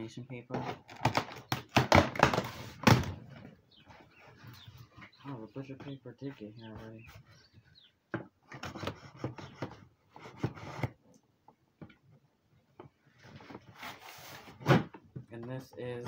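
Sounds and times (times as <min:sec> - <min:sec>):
scissors scraping cardboard: 0:08.5 - 0:11.0.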